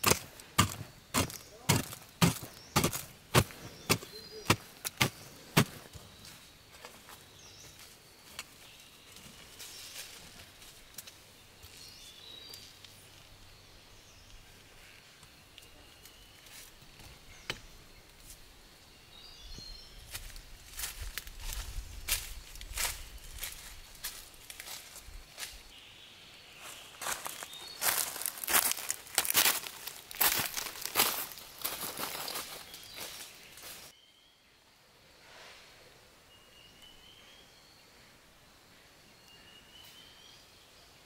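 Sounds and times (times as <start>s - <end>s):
hoe chopping into dry soil: 0.0s - 6.0s
footsteps rustling through leaves: 0.0s - 11.0s, 20.0s - 25.7s, 26.6s - 33.9s
birds chirping faintly: 0.0s - 41.0s.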